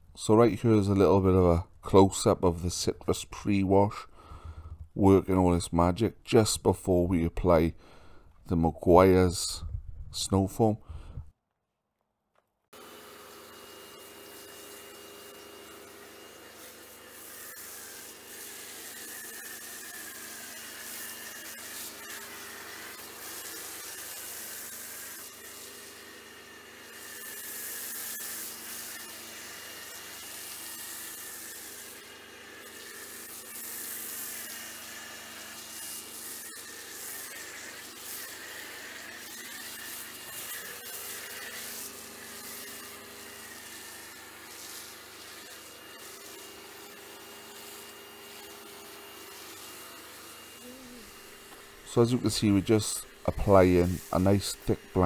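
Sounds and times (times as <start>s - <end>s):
pressure washer whine: 12.8s - 55.0s
pressure washer spray hiss: 14.0s - 26.0s, 32.7s - 34.5s, 35.6s - 48.5s, 49.2s - 55.0s.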